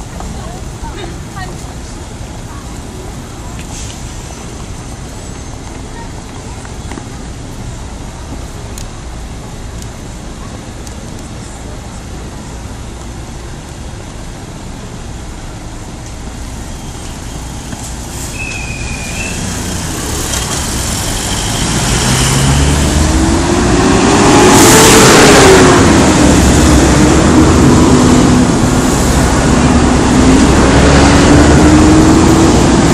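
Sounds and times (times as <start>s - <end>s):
city street traffic: 0.0s - 32.9s
diesel bus engine: 0.0s - 32.9s
bus air brake hiss: 3.6s - 4.5s, 18.0s - 19.6s
brief high squeak: 18.2s - 19.5s.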